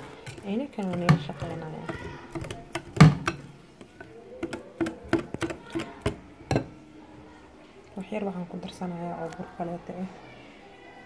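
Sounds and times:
whisk knocking against glass bowl: 0:00.0 - 0:06.8.

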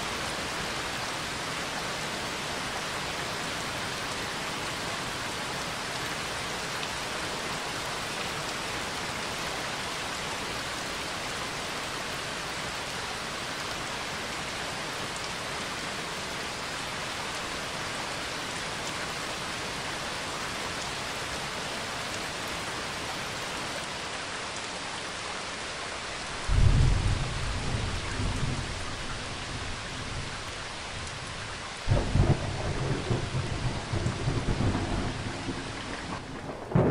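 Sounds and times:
steady rain falling: 0:00.0 - 0:36.9
thunder rumbling: 0:26.5 - 0:30.4, 0:31.9 - 0:36.9.

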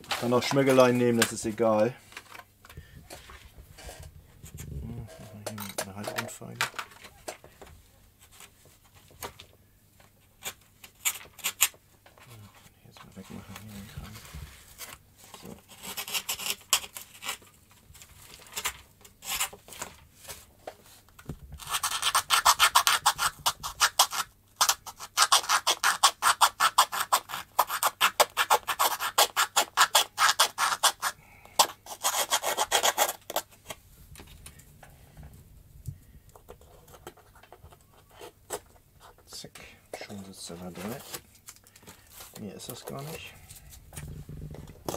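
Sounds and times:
hand file rasping: 0:21.6 - 0:33.5.

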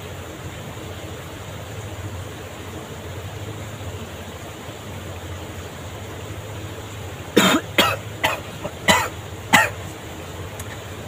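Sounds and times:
man coughing: 0:07.4 - 0:09.8.

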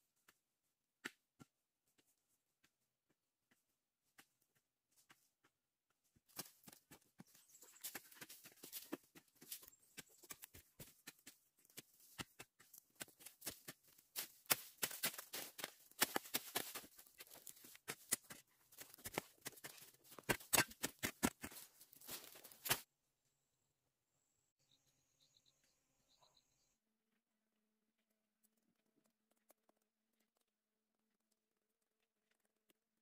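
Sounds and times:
footsteps crunching on dry twigs: 0:06.3 - 0:22.9.

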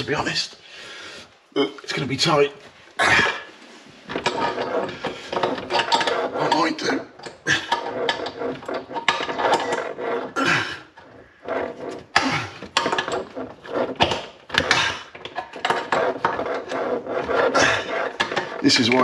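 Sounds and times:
spanner clinking on metal pipework: 0:04.1 - 0:10.2.

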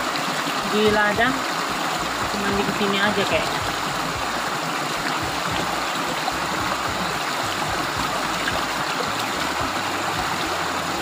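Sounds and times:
small waterfall splashing: 0:00.0 - 0:11.0.

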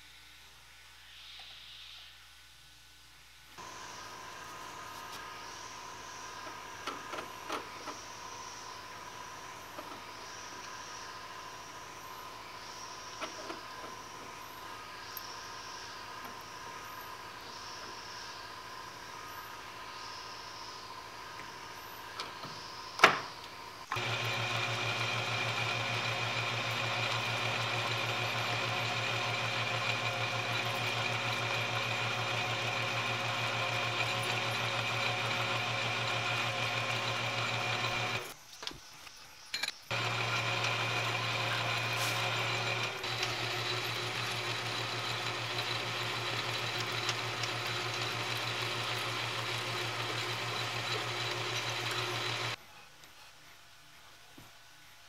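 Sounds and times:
drill boring into metal: 0:23.9 - 0:38.4, 0:39.9 - 0:52.6
metal lathe humming and whining: 0:23.9 - 0:38.4, 0:39.9 - 0:52.6.

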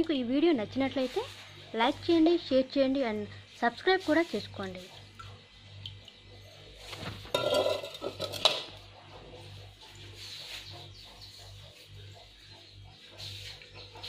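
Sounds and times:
kitchenware clattering: 0:07.2 - 0:08.8.

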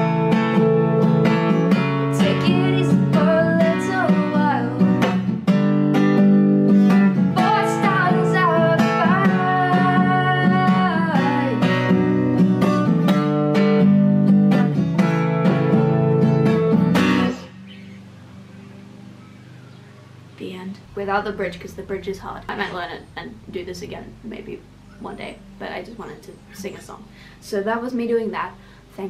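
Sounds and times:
acoustic guitar strumming: 0:00.0 - 0:28.8
woman singing: 0:02.1 - 0:05.2, 0:07.3 - 0:12.0.

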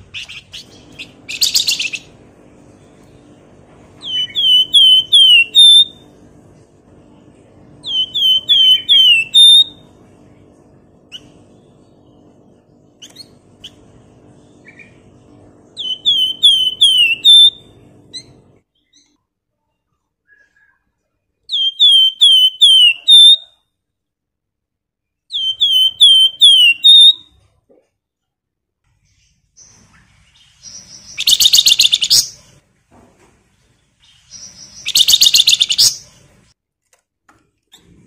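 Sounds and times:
faint low hum: 0:00.0 - 0:38.0
bird singing whistled phrases: 0:04.0 - 0:06.0, 0:07.8 - 0:09.8, 0:15.8 - 0:17.7, 0:21.5 - 0:23.6, 0:25.3 - 0:27.3, 0:30.7 - 0:32.3, 0:34.3 - 0:36.0.

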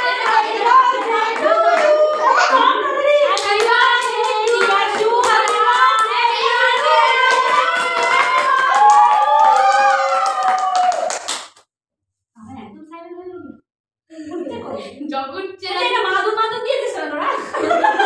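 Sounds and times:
women and girls singing: 0:00.0 - 0:08.8
hands clapping: 0:03.3 - 0:11.7.

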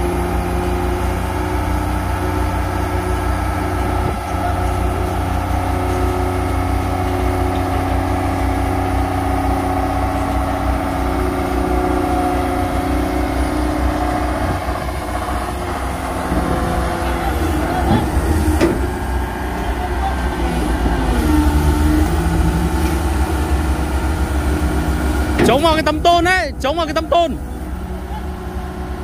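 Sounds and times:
excavator diesel engines running: 0:00.0 - 0:29.0.

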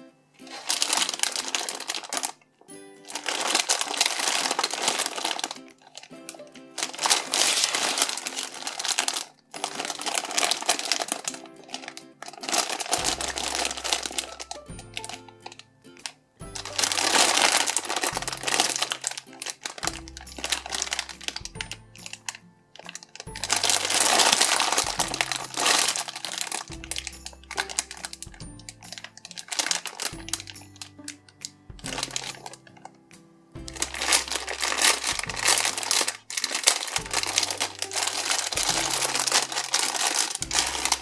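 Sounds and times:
plastic packaging crinkling: 0:00.4 - 0:33.0, 0:33.6 - 0:41.0
background music with bass line: 0:13.0 - 0:15.5, 0:33.1 - 0:35.9.

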